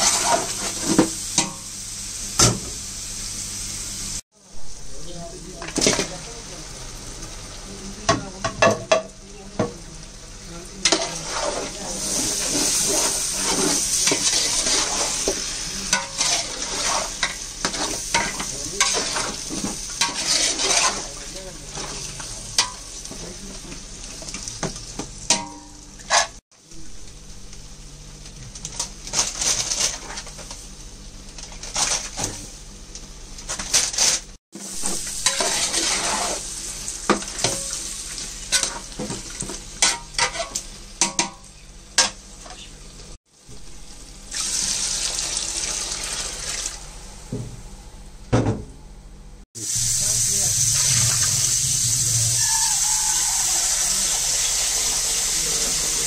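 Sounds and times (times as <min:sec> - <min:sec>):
meat sizzling in a pot: 0:00.0 - 0:47.0, 0:49.6 - 0:56.0
metal ladle scraping a pot: 0:10.9 - 0:15.3, 0:20.0 - 0:21.1, 0:35.2 - 0:36.4, 0:39.8 - 0:40.6.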